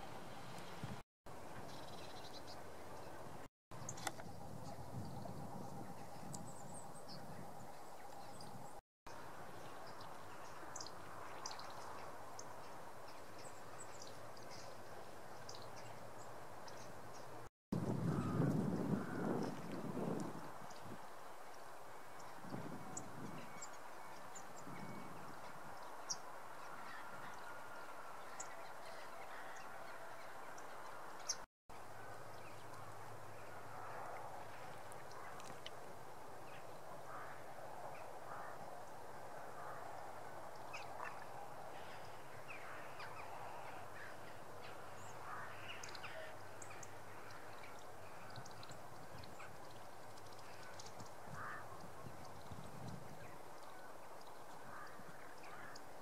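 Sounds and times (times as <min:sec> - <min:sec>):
small birds chirping: 0:40.6 - 0:55.9.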